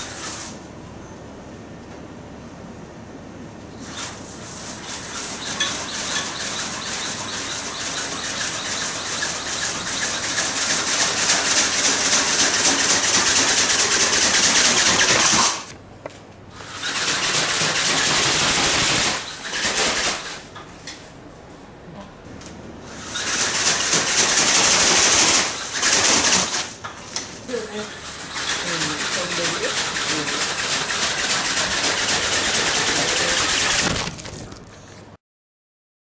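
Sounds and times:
flapping wings beating: 5.1s - 15.7s, 16.7s - 20.4s, 23.0s - 26.7s, 28.3s - 34.8s.

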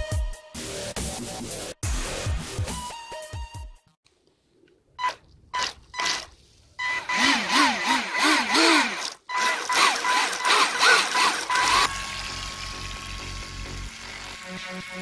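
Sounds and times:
electric motors whining: 6.8s - 15.0s.

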